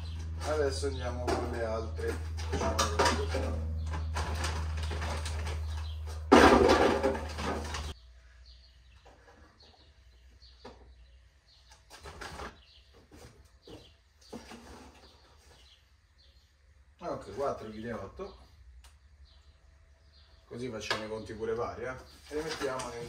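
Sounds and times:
potatoes rustling and knocking: 0:22.1 - 0:23.0.

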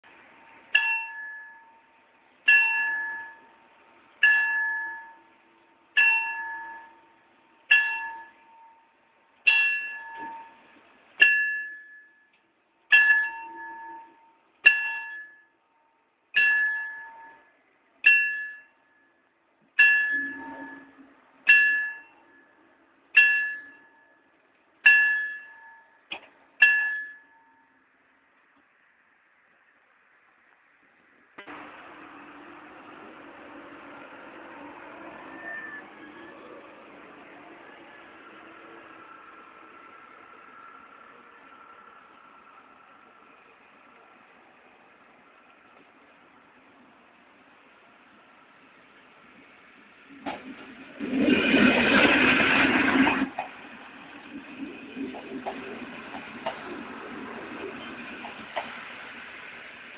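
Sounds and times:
level crossing warning bell: 0:00.4 - 0:27.9, 0:34.0 - 0:36.8.

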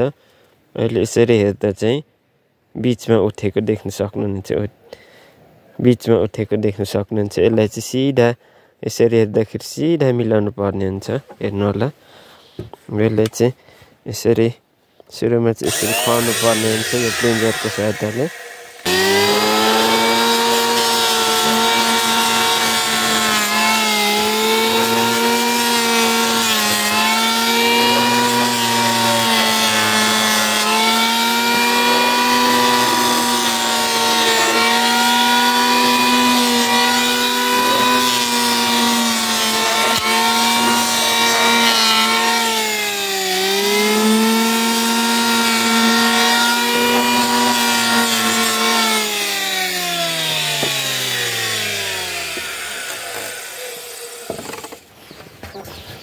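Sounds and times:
electric hand planer whining: 0:15.6 - 0:54.8.

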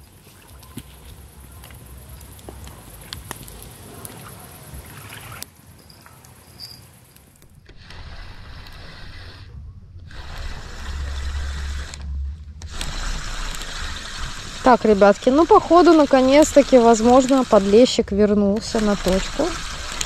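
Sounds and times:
low rumble on microphone: 0:07.4 - 0:20.0
fishing reel winding: 0:10.1 - 0:18.0, 0:18.6 - 0:20.0.

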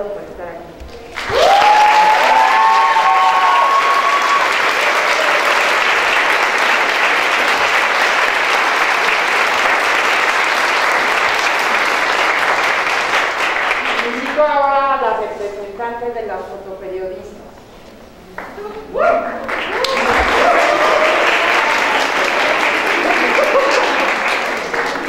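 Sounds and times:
audience applauding: 0:01.1 - 0:14.4, 0:19.4 - 0:25.0
long held whoops: 0:01.2 - 0:05.6, 0:18.9 - 0:22.1.

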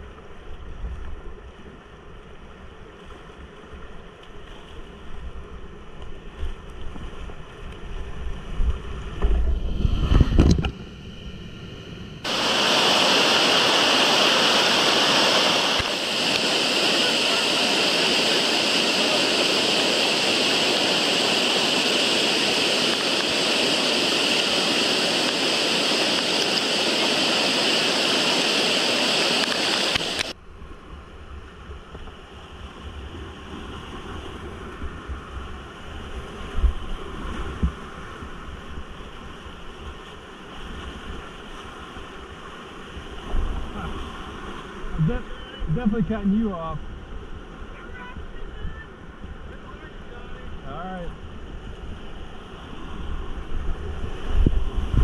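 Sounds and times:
wind rumbling on microphone: 0:00.0 - 0:55.0
river whitewater rushing: 0:12.2 - 0:30.4
water pouring over waterfall: 0:12.3 - 0:30.4.

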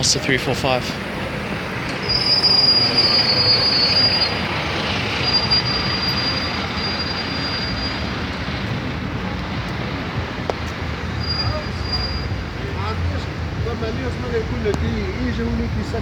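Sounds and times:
street traffic noise: 0:00.0 - 0:16.0.

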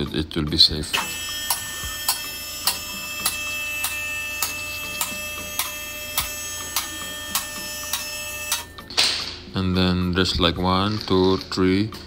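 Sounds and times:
hydraulic pump whine: 0:00.9 - 0:09.0.

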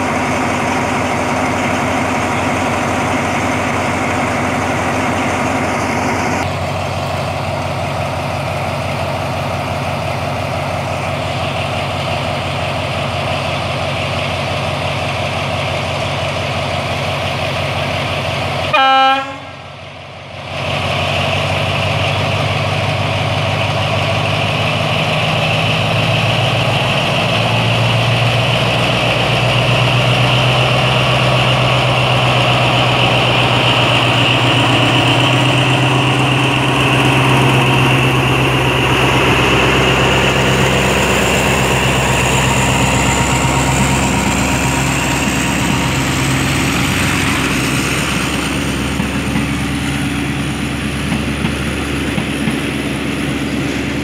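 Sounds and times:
diesel locomotive engine hum: 0:00.0 - 0:54.0
locomotive horn toot: 0:18.6 - 0:19.7.

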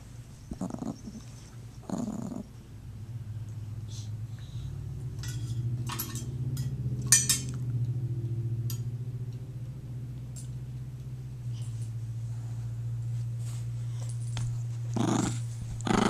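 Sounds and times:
dog growling low: 0:00.5 - 0:02.6, 0:14.9 - 0:16.0.

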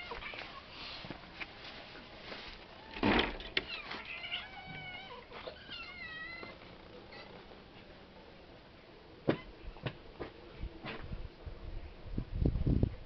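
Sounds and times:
cat meowing: 0:03.6 - 0:07.4.

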